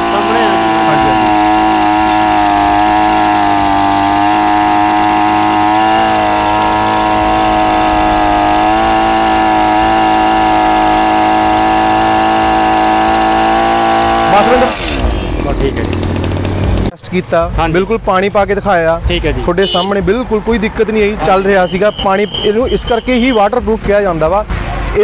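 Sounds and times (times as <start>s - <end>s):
water spraying: 0.0s - 15.3s
small two-stroke engine running: 0.0s - 16.9s.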